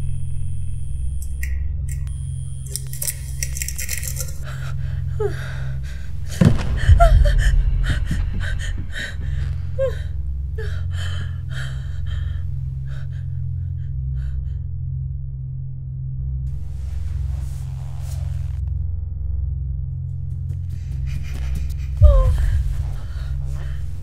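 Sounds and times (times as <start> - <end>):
low drone: 0.0 - 24.0
loud hit: 6.4 - 9.8.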